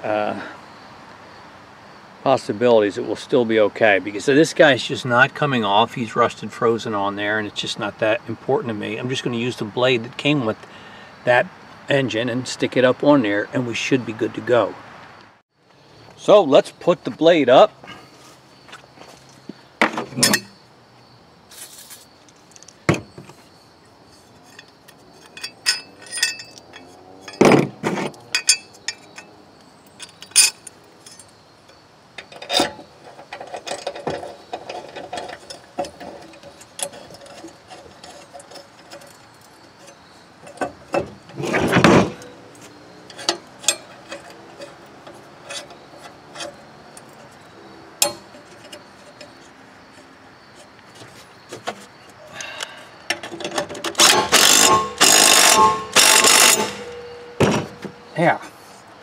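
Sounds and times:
metal blade clinks and knocks: 20.2 - 20.6, 24.4 - 27.6, 28.2 - 31.4, 43.1 - 47.2, 48.0 - 49.5, 54.0 - 58.1.

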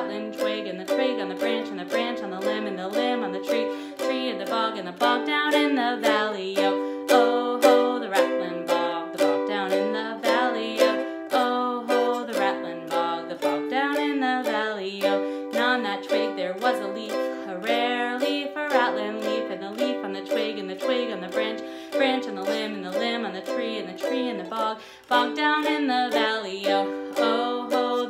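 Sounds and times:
ukulele strumming: 0.0 - 28.0
woman singing folk song: 0.0 - 28.0.

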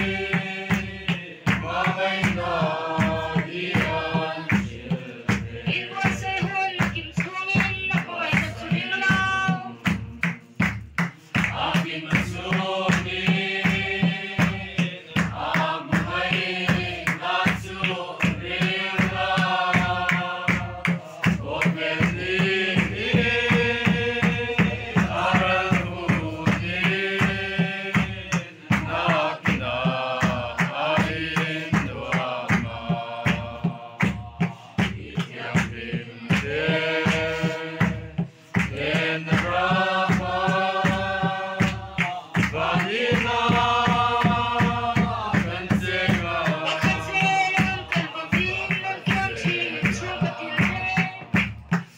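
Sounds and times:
crowd singing a slow hymn: 0.0 - 51.9
drum beats: 0.0 - 51.9.

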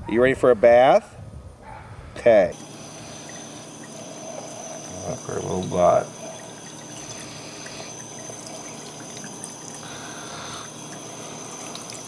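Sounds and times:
tap water running into sink: 3.2 - 12.0.

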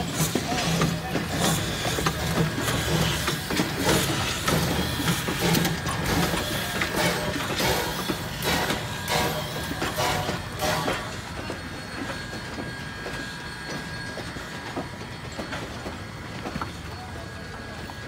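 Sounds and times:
steam locomotive chuffing: 0.0 - 18.0
mechanical clanking and rattling: 0.1 - 14.3.

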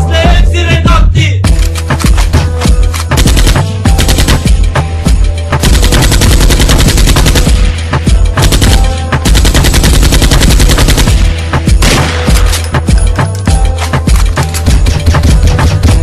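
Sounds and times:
rapid automatic gunfire: 3.1 - 4.7, 5.6 - 7.8, 8.4 - 12.6.

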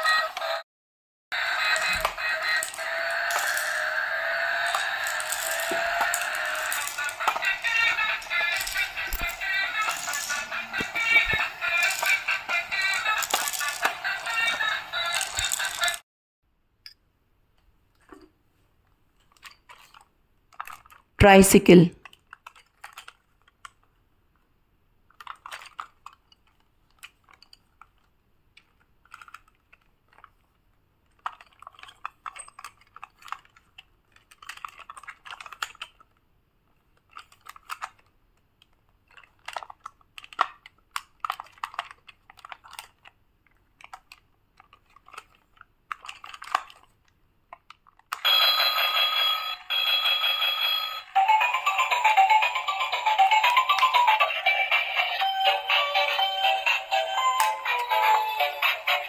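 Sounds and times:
electronic toy tune: 1.4 - 15.9, 48.2 - 59.0
plastic toy clicks and rattles: 1.4 - 16.0, 19.2 - 21.2, 22.0 - 23.9, 25.1 - 36.2, 36.8 - 59.0.

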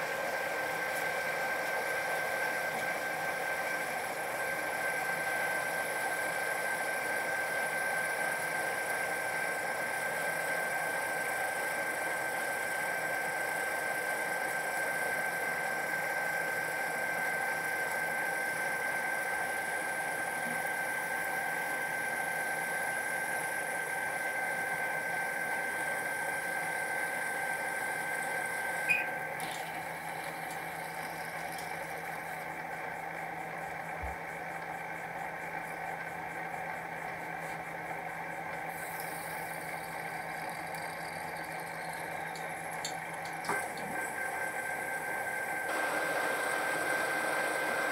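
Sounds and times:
drill boring high whine: 0.0 - 47.9
metal lathe running: 0.0 - 47.9.

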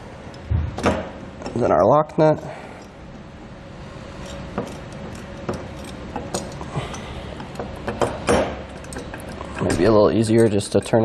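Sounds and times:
metal washer and nut clinking: 4.2 - 10.7.

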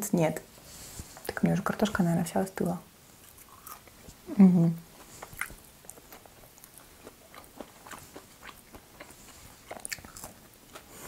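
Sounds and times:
chewing french fries: 3.2 - 4.0, 5.0 - 11.0.

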